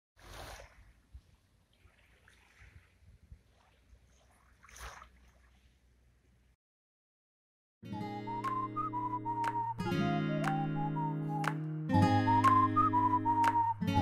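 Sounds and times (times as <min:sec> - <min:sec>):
small waves lapping on pebbles: 0:00.2 - 0:05.9.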